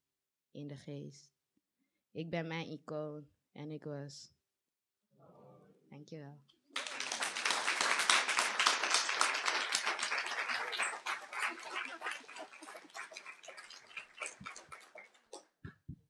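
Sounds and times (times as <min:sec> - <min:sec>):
audience applauding: 0:06.8 - 0:15.4.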